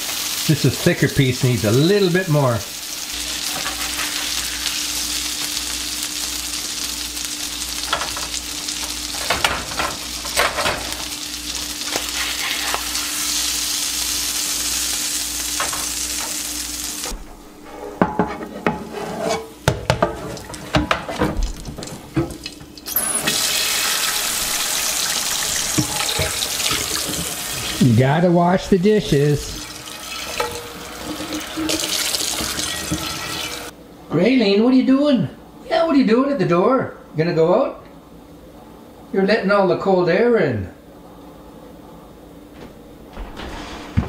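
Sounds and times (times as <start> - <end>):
fish sizzling in frying pan: 0.0 - 17.2, 22.4 - 27.8, 29.4 - 33.7
tap running water into sink: 24.2 - 27.7.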